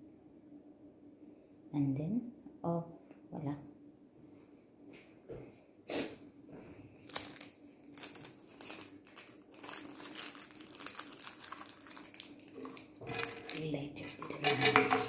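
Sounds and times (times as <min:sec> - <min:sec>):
crinkling and rustling in hands: 0:06.5 - 0:15.0.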